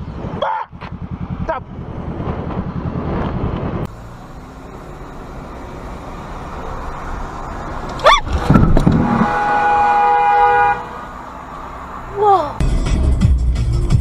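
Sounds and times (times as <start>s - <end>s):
motorcycle engine running: 0.0s - 9.5s
wind rush on camera: 7.9s - 9.4s.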